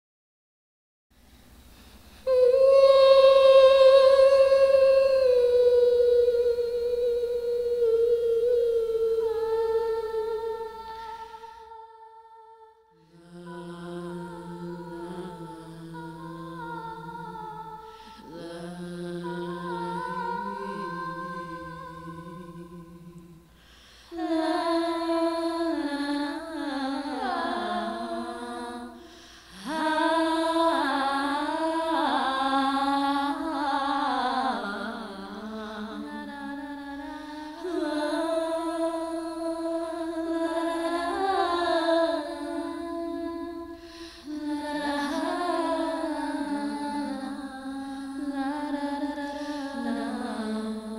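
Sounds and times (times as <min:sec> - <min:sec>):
person humming and singing: 0:02.2 - 0:11.9, 0:13.0 - 0:23.4, 0:24.1 - 0:50.9.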